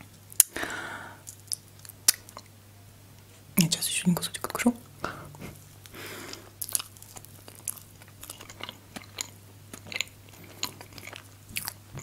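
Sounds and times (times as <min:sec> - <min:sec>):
chewing with mouth clicks: 0:05.8 - 0:12.0.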